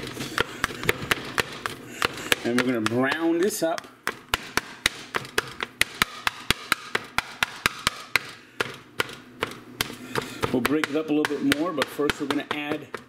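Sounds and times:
plastic chopper tapping frying pan: 0.3 - 9.6.

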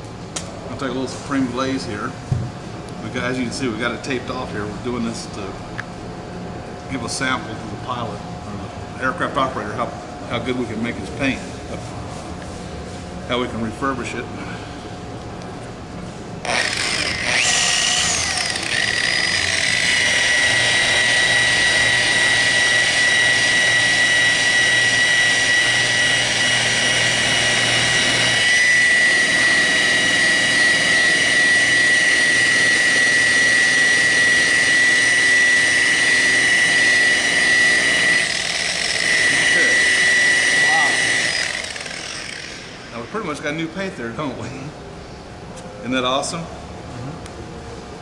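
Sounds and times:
electric polisher whining: 16.4 - 43.0.

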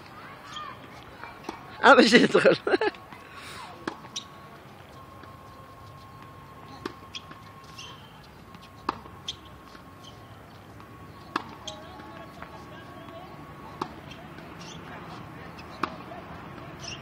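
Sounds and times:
racket hitting tennis ball: 11.3 - 11.7, 13.7 - 14.8, 15.6 - 16.0.

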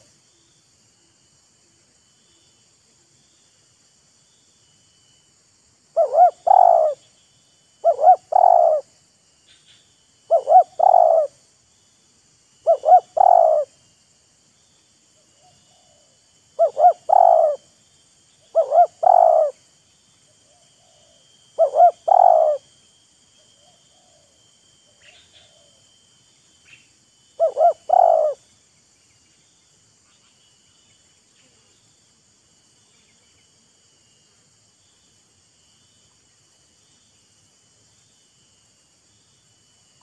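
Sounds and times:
dove cooing: 6.0 - 7.0, 7.8 - 8.9, 10.3 - 11.4, 12.6 - 13.7, 15.4 - 17.7, 18.5 - 19.6, 20.5 - 22.7, 27.4 - 28.4.

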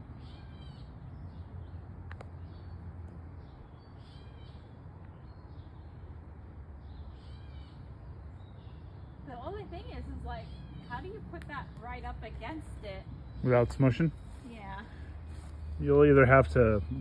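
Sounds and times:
bird calling: 3.4 - 6.1, 6.8 - 17.0.

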